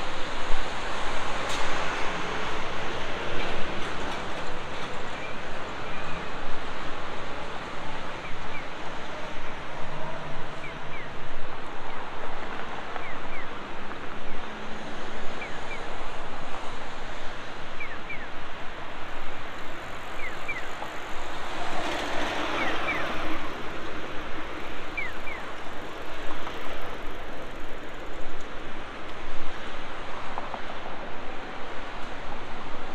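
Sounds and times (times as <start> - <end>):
cars passing: 18.9 - 32.9.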